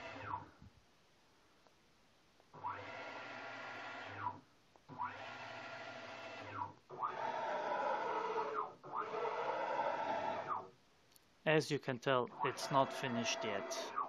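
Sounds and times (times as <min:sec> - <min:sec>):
stepper motors whining: 0:05.0 - 0:10.7, 0:12.3 - 0:14.0.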